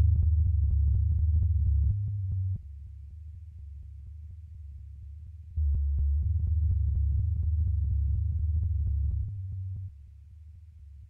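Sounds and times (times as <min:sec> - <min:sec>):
deep low drone: 0:05.6 - 0:09.9.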